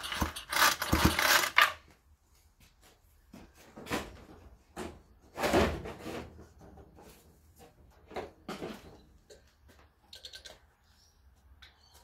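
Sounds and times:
objects clunking and clattering: 3.3s - 10.7s.

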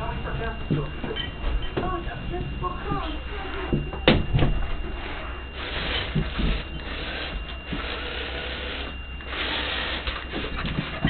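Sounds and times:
toy motor gears whirring and grinding: 5.6s - 11.0s.

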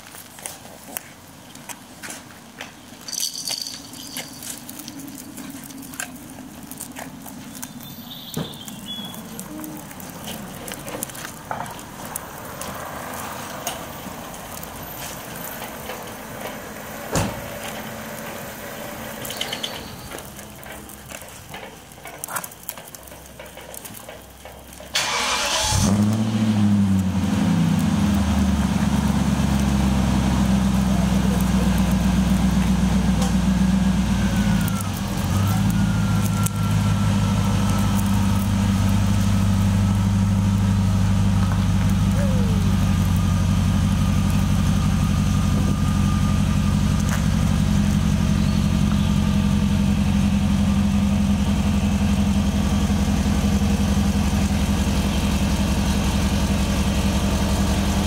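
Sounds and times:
starter cranking engine: 22.3s - 43.2s
engine fast idle: 24.9s - 58.0s.

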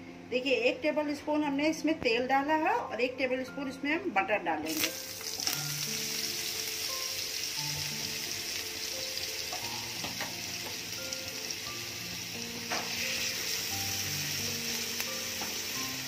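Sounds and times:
soft background music: 0.0s - 16.0s
butter sizzling in a frying pan: 4.7s - 16.0s.

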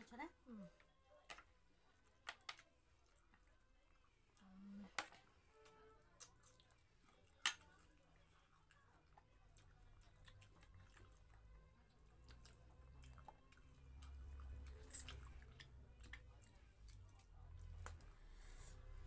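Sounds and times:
person chewing: 6.1s - 18.1s.

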